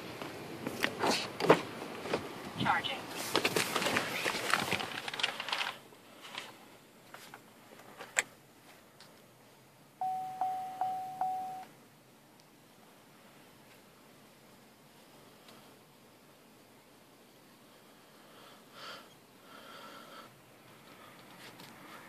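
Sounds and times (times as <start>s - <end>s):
rustling and clattering: 3.1s - 8.8s
car chime beeps: 10.0s - 11.7s.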